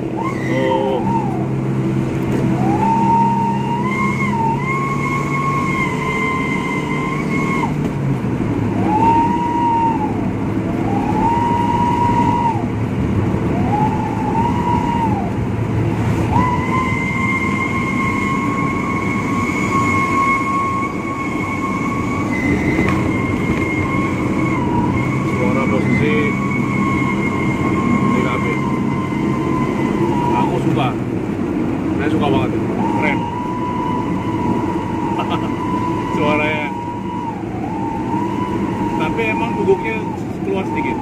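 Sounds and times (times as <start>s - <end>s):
engine drone inside vehicle: 0.0s - 41.0s
high howling exhaust whistle: 0.0s - 41.0s.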